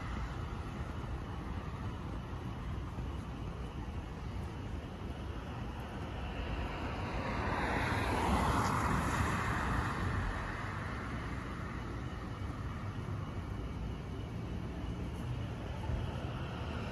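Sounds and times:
distant traffic rumble: 0:00.0 - 0:16.9
car passing on street: 0:06.0 - 0:13.5.

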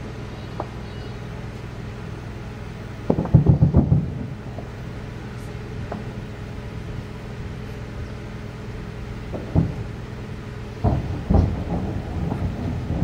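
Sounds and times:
steady low rumble: 0:00.0 - 0:13.0
distant weapons fire booms: 0:03.0 - 0:04.7, 0:09.3 - 0:10.0, 0:10.8 - 0:13.0.

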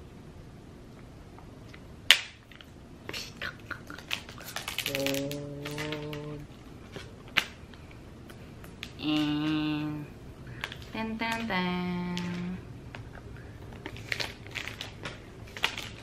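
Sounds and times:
person humming: 0:03.1 - 0:06.5, 0:09.0 - 0:10.2
plastic wrap tearing and crinkling: 0:04.0 - 0:07.6, 0:13.8 - 0:16.0.

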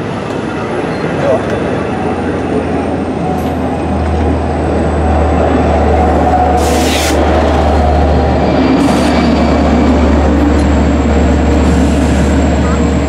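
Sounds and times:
diesel train rolling past: 0:00.0 - 0:13.0
short air hiss: 0:06.6 - 0:07.2.

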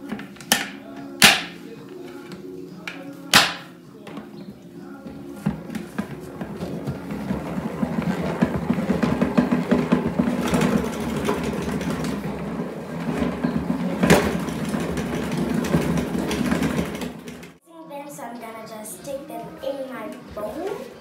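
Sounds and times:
sharp knock: 0:00.5 - 0:01.6
salad spinner whirring: 0:05.3 - 0:17.6.

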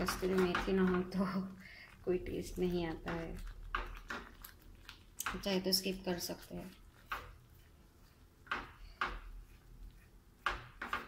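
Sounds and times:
stirring thick gravy: 0:00.0 - 0:11.0
spatula scraping a pan: 0:06.6 - 0:11.0.

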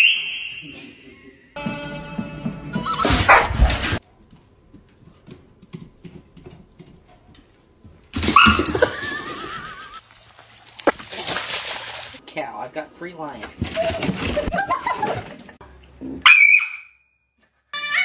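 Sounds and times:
dog barking and yelping: 0:03.1 - 0:03.9, 0:08.2 - 0:08.8, 0:16.2 - 0:16.9.

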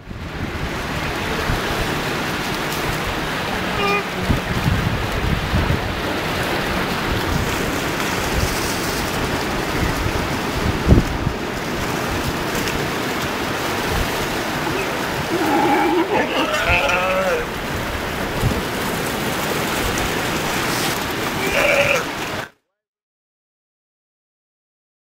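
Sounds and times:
surf washing over rocks: 0:00.0 - 0:22.5
sea lion pup bleating call: 0:03.7 - 0:04.2, 0:14.6 - 0:17.5, 0:21.4 - 0:22.1.

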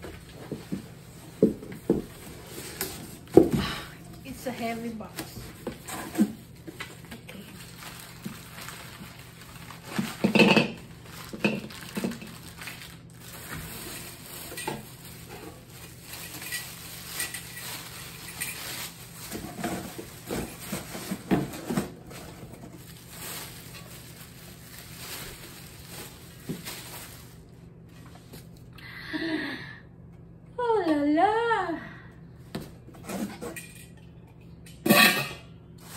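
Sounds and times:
plastic wrap and paper crinkling: 0:04.0 - 0:28.7
metal lid and pan clinking: 0:34.8 - 0:35.4.

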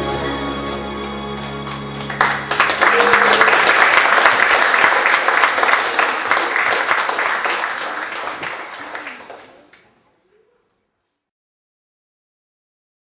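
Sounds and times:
audience clapping: 0:01.3 - 0:10.0.

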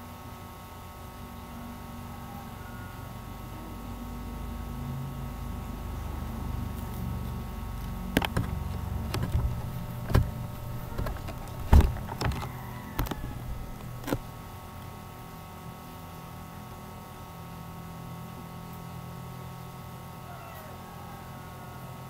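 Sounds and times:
steady low hum: 0:00.0 - 0:20.2
irregular knocks and bumps: 0:08.1 - 0:14.3.

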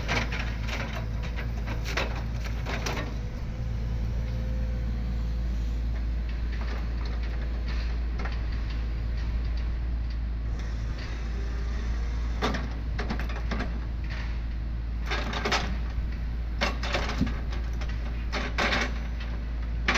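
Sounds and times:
excavator diesel engine running: 0:00.0 - 0:19.9
logs knocking and clunking: 0:15.0 - 0:19.9.

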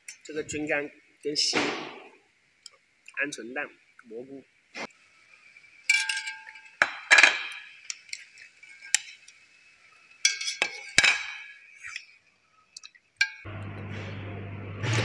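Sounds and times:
utensils clinking on metal pot: 0:05.9 - 0:07.6, 0:10.2 - 0:11.6, 0:12.8 - 0:13.4.

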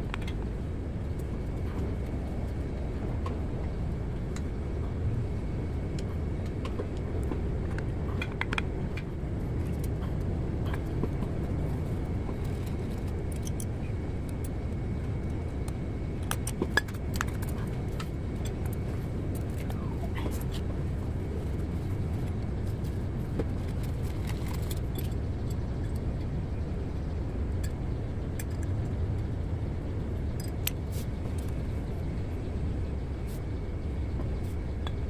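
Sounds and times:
low background rumble: 0:00.0 - 0:35.0.

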